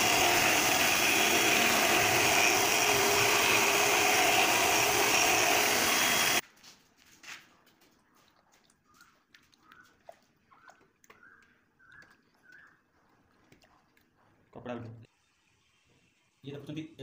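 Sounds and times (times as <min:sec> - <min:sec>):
finishing machine whine: 0:00.0 - 0:06.4
faint taps and splashes in water: 0:07.6 - 0:12.8.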